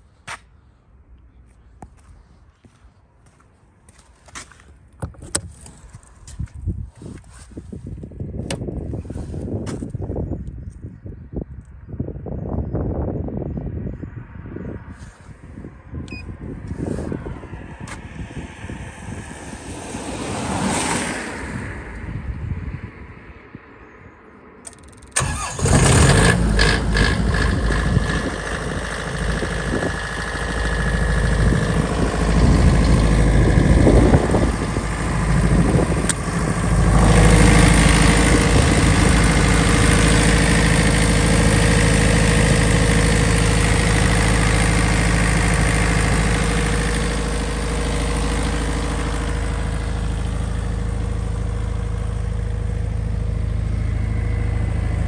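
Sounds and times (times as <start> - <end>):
diesel generator engine running: 25.1 - 55.0.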